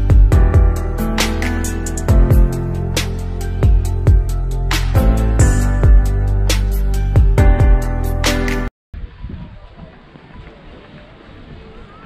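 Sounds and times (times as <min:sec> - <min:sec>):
music with steady drum beat: 0:00.0 - 0:08.7.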